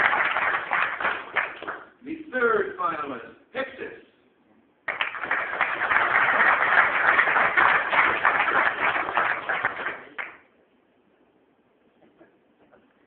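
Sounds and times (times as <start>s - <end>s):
audience applauding: 0.0s - 1.9s, 4.9s - 10.4s.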